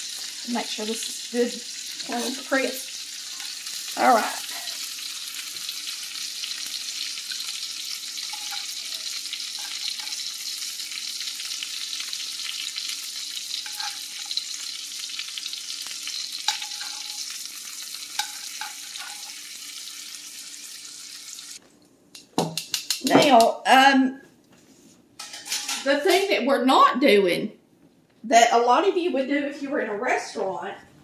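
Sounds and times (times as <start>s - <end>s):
food sizzling in a skillet: 0.0s - 21.6s
metal tongs clicking: 22.6s - 23.0s.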